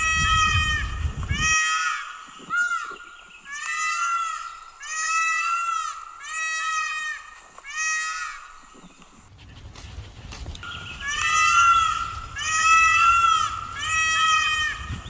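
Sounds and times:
peacock calling: 0.0 - 9.6, 10.6 - 15.0.

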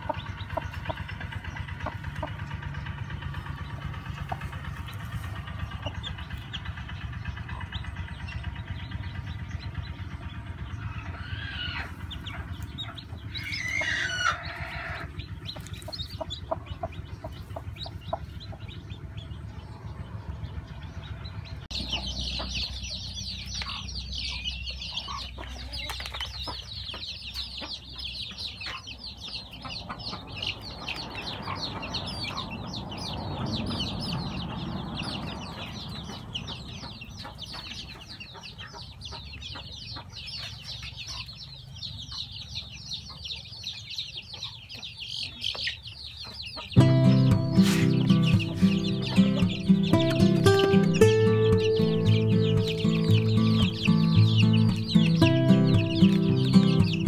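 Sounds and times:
low rumble: 0.0 - 24.8
chicks peeping chorus: 0.0 - 57.0.

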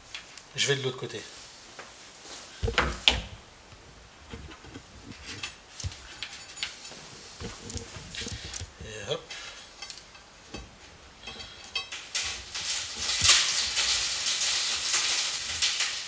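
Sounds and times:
wires and connectors handling: 2.6 - 9.2, 11.2 - 16.0.

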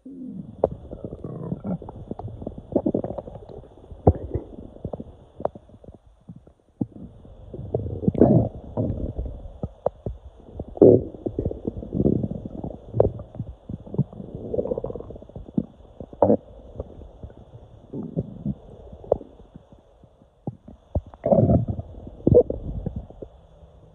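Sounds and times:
stomach rumbling and gurgling: 0.0 - 23.9.

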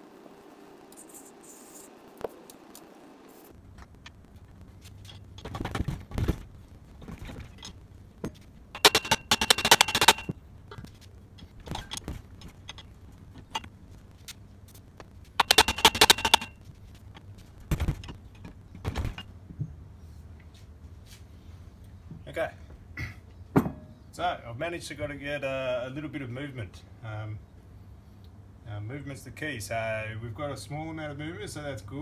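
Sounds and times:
metal clanking and rattling: 4.9 - 13.8, 15.4 - 19.3
fast metallic rattle: 8.7 - 10.4, 11.4 - 13.7, 15.4 - 16.6
single metal knocks: 23.5 - 24.0.

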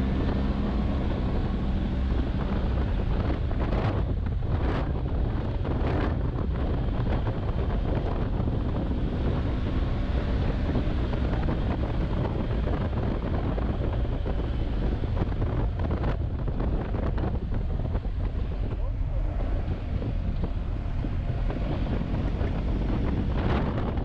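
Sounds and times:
road noise: 0.0 - 24.0
wind buffeting microphone: 0.0 - 24.0.

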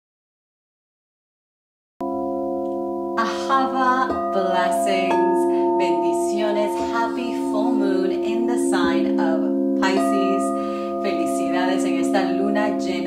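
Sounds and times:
crystal singing bowls ringing: 2.0 - 13.0
woman singing: 3.2 - 13.0.

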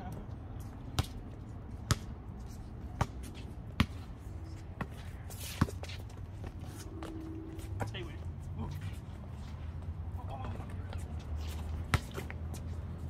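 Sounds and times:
basketball bouncing on concrete: 0.7 - 4.1, 11.8 - 12.6.

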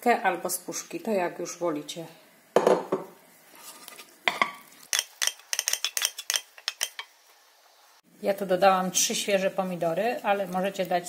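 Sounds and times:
wooden spatula scraping pan: 3.5 - 4.2.

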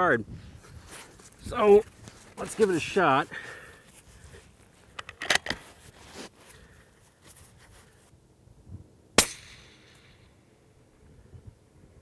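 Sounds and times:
suppressed rifle shot: 9.2 - 10.3.

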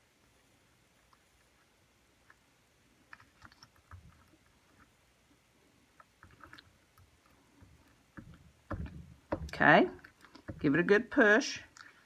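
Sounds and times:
hands tapping paper: 6.2 - 10.8.

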